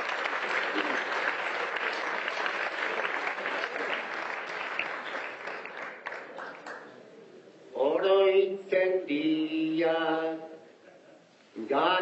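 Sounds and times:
audience applauding: 0.0s - 6.9s.

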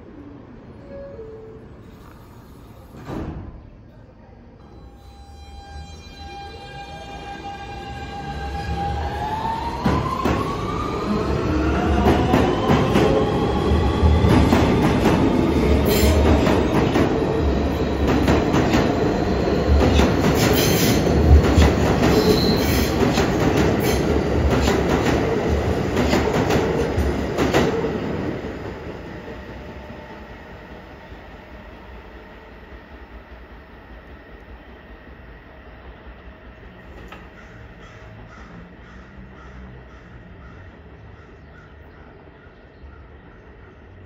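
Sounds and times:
subway cars rumbling: 0.0s - 44.0s
subway traction motor whine: 4.6s - 41.4s.

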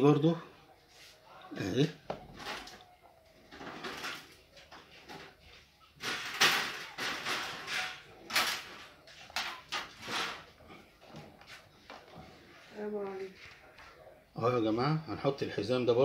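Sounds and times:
wire fan guard rattling: 6.0s - 10.5s.

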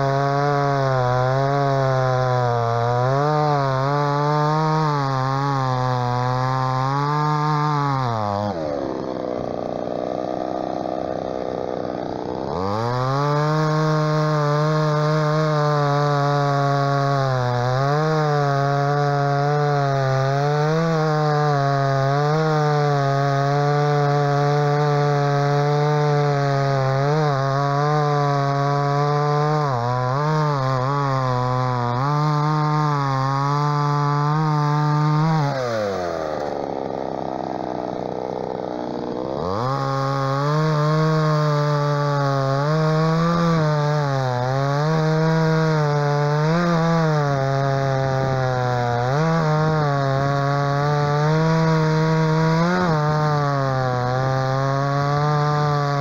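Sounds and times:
chainsaw cutting log: 0.0s - 56.0s.

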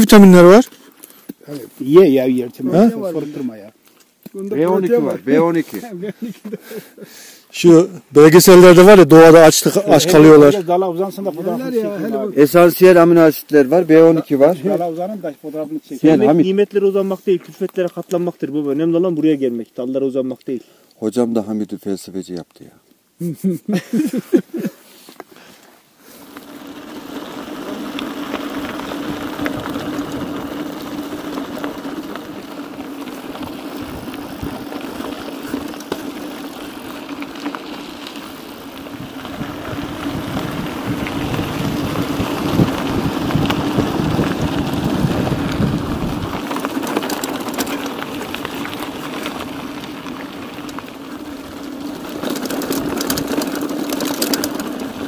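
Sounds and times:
bike tyres rolling: 0.0s - 23.0s, 23.7s - 55.0s
wind on microphone: 38.9s - 46.5s.

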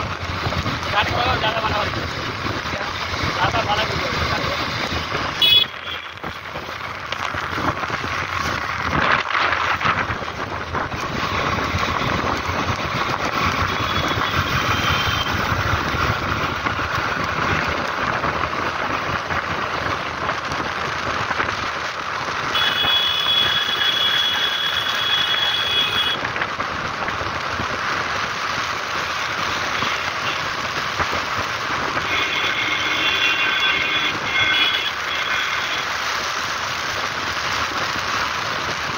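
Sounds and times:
wind rush: 0.0s - 20.2s
motorcycle engine: 0.0s - 38.9s
tyre hiss on wet road: 0.0s - 38.9s.

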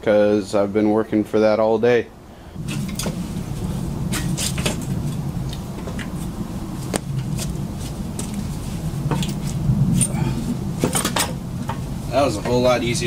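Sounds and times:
steady low hum: 2.0s - 13.0s
metal clinks and knocks: 10.8s - 11.8s.

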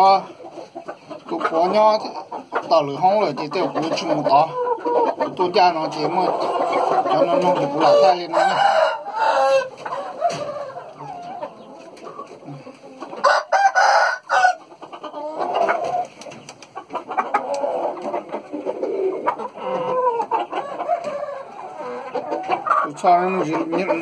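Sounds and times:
chickens clucking and calling: 0.0s - 24.0s
rooster crowing: 7.9s - 10.7s, 13.2s - 14.7s.

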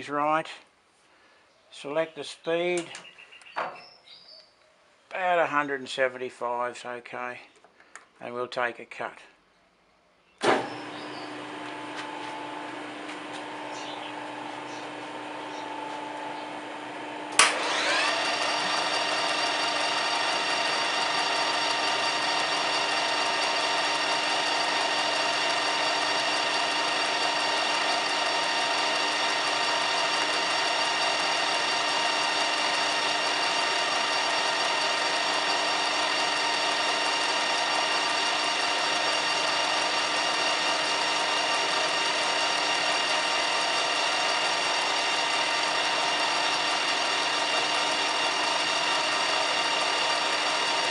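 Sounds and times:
lathe switch click: 17.3s - 17.6s
metal lathe whining: 17.4s - 50.9s.

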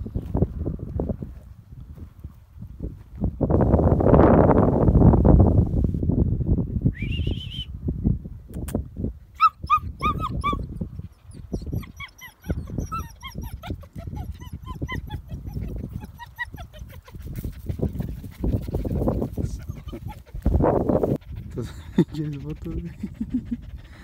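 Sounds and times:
wind rumbling on microphone: 0.0s - 24.0s
puppies whimpering and whining: 9.4s - 18.0s, 19.3s - 20.6s, 22.0s - 24.0s.

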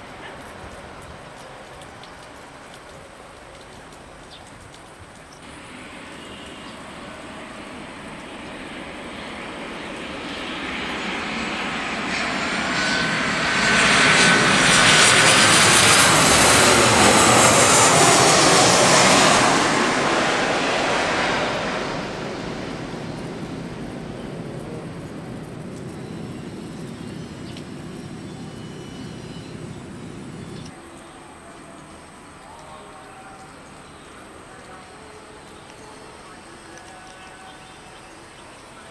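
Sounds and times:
jet airliner passing: 5.4s - 30.7s.

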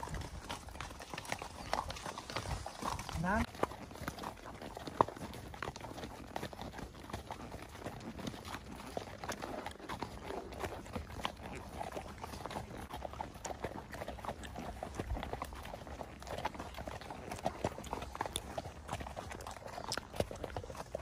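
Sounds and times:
hooves on gravel: 0.0s - 21.0s.

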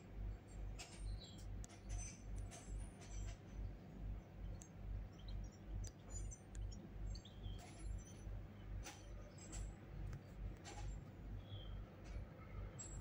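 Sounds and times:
faint clicks: 4.5s - 4.8s
bird chirps: 4.5s - 8.3s, 11.4s - 11.8s.

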